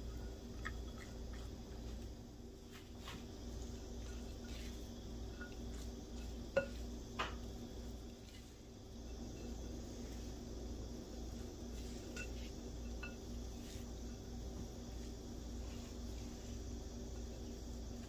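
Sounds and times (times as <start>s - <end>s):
low steady hum: 0.0s - 18.0s
spatula mixing in glass bowl: 3.6s - 6.9s, 11.3s - 17.4s.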